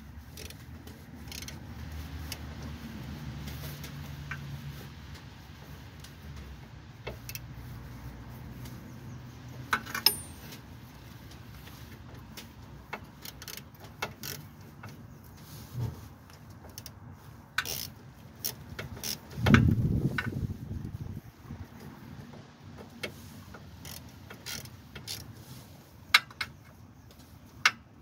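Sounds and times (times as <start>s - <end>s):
metallic clicks of hand tools: 9.7s - 10.6s.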